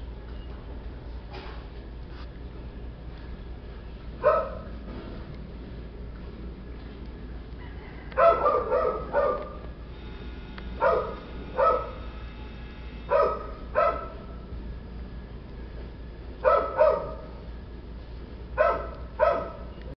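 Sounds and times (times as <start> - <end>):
dog barking: 4.2 - 4.7, 7.9 - 9.6, 10.8 - 12.0, 13.1 - 14.4, 16.4 - 17.4, 18.6 - 19.7.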